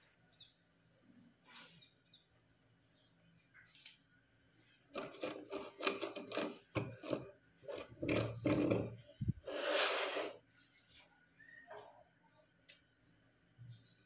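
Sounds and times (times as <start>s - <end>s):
carriage scraping along wood: 4.9s - 10.4s
winch spool creaking: 5.0s - 9.0s.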